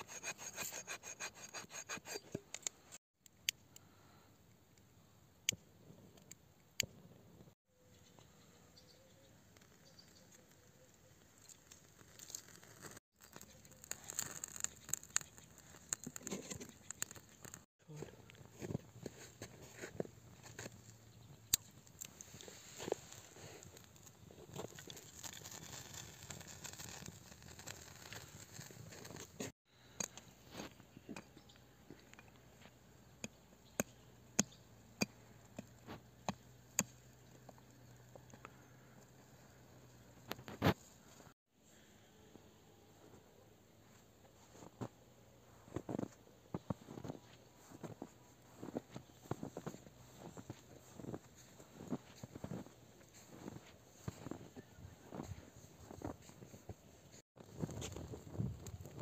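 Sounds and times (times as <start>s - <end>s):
campfire crackling and snapping: 11.3s - 17.7s, 21.5s - 30.7s.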